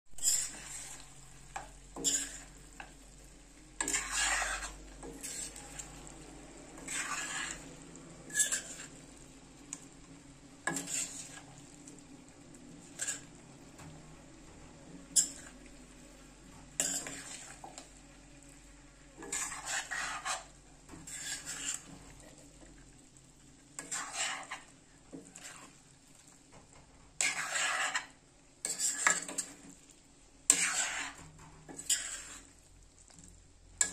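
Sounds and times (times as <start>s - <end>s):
food sizzling faintly: 0.1s - 33.9s
utensil scraping metal pot: 0.2s - 3.1s, 3.8s - 10.0s, 10.6s - 12.0s, 12.7s - 18.2s, 19.2s - 22.6s, 23.8s - 25.8s, 27.2s - 29.7s, 30.5s - 32.6s.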